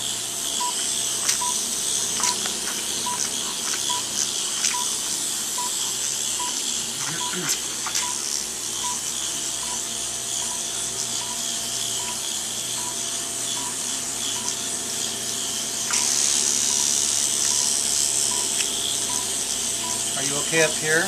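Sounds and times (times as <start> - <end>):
short electronic beeps: 0.6 - 1.6, 3.0 - 4.1, 8.0 - 9.0.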